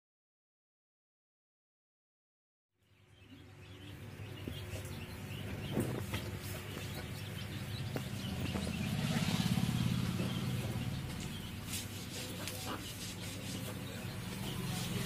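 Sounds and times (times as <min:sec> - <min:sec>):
birds chirping: 0:02.8 - 0:15.0
engine running: 0:04.0 - 0:15.0.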